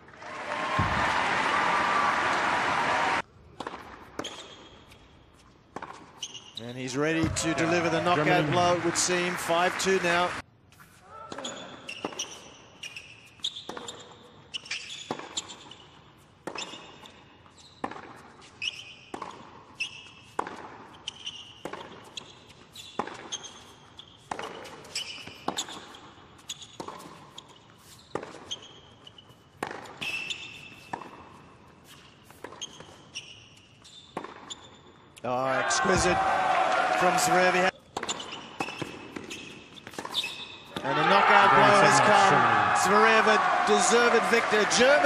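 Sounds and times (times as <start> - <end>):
racquet striking tennis ball: 3.5 - 4.4, 20.3 - 20.8, 37.9 - 41.2
tennis ball bouncing: 3.5 - 6.4, 17.8 - 22.3, 23.0 - 25.9, 26.6 - 33.1, 34.2 - 34.6, 37.8 - 41.0
sneaker squeaks: 4.1 - 7.6, 10.8 - 35.2, 37.7 - 40.9.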